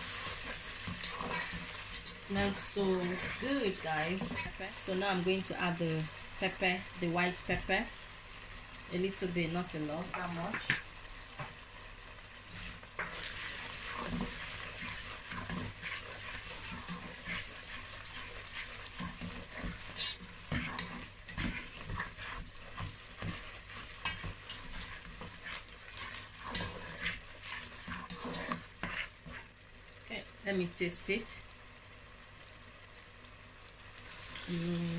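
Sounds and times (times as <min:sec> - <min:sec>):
spatula scraping and tapping pan: 0:00.0 - 0:04.6, 0:12.6 - 0:29.5
sauce sizzling in a pot: 0:00.0 - 0:34.9.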